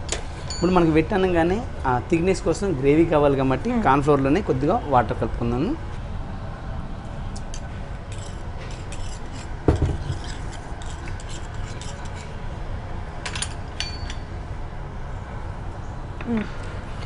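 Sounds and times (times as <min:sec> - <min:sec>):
steady low hum: 0:00.0 - 0:17.0
metal spoon clinking on steel bowl: 0:13.3 - 0:14.3
short metallic ring: 0:13.3 - 0:14.3.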